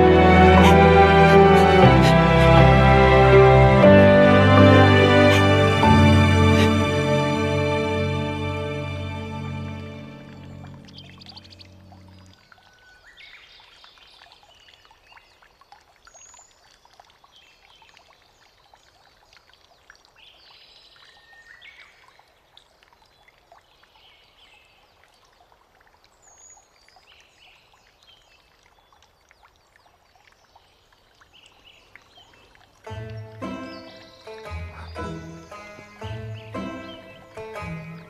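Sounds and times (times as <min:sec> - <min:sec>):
water trickling into stone basin: 0:00.0 - 0:38.0
small birds chirping: 0:10.2 - 0:38.0.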